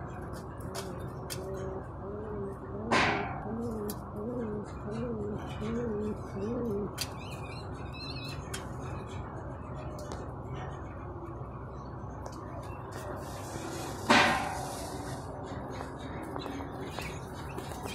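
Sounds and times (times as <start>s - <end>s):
pigeon cooing: 0.7s - 7.0s.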